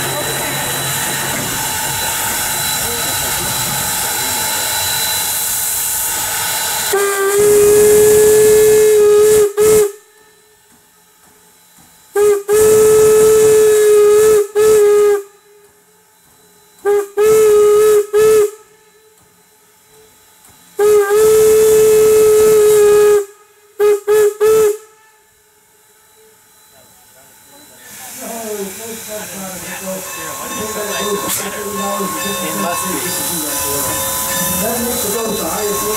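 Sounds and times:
steam whistle blasts: 0.0s - 10.8s, 12.1s - 19.3s, 20.8s - 26.8s, 28.4s - 35.9s
steam hissing: 0.0s - 25.0s, 25.6s - 35.9s.

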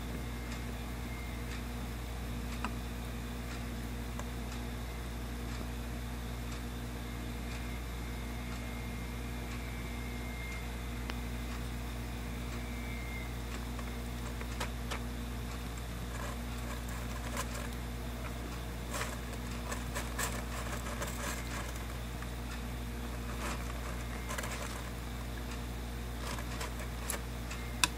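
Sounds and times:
steady low hum: 0.0s - 27.9s
crab claws clicking and scratching: 13.4s - 27.9s.

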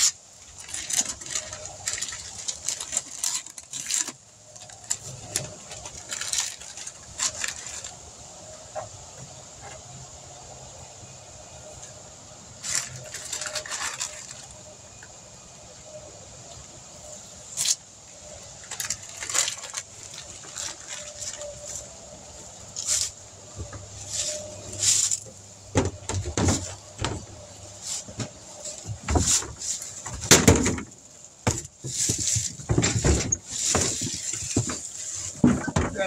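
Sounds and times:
paper rustling and crackling: 0.0s - 8.0s, 12.6s - 14.7s, 17.5s - 36.0s
dull thumps: 23.6s - 36.0s.

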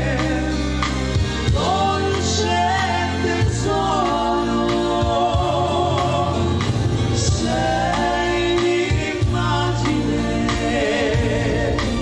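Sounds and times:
live band music: 0.0s - 12.0s.

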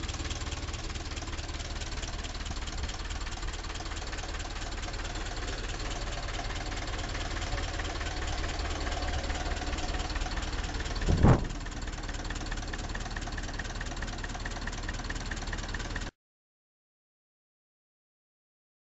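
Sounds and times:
tractor diesel engine running: 0.0s - 16.1s
loud thump: 11.0s - 11.7s.

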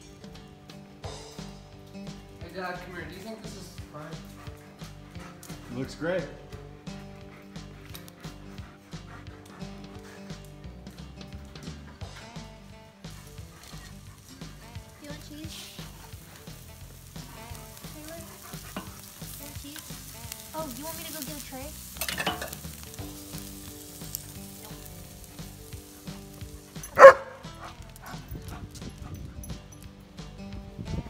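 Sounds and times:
steaks sizzling on grill: 0.0s - 31.0s
dog barking: 26.8s - 28.2s.

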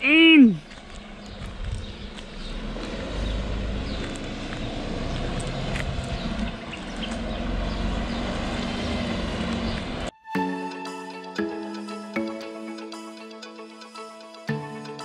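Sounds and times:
truck engine running: 0.6s - 10.1s
wind on microphone: 1.2s - 2.2s, 5.6s - 6.8s.

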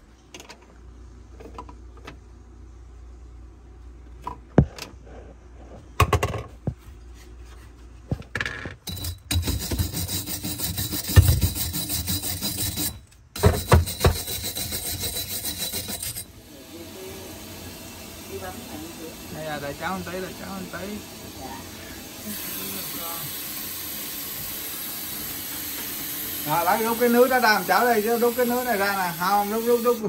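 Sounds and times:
bristle brush scrubbing pipe: 8.9s - 16.3s, 18.6s - 30.0s.

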